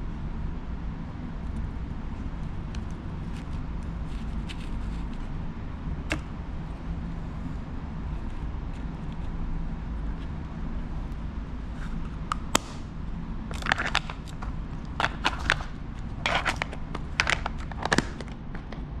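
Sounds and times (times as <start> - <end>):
steady low rumble: 0.0 - 19.0
plastic box clicks and scrapes: 13.5 - 18.7.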